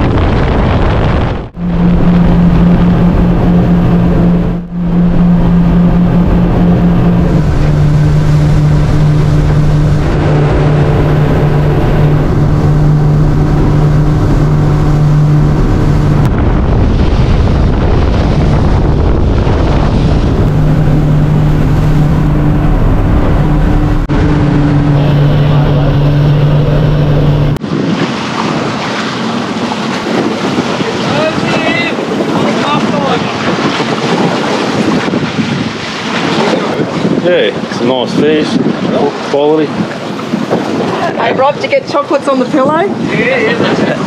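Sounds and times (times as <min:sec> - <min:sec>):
boat motor humming: 0:00.0 - 0:44.0
heavy wind: 0:00.0 - 0:44.0
water rushing: 0:00.0 - 0:44.0.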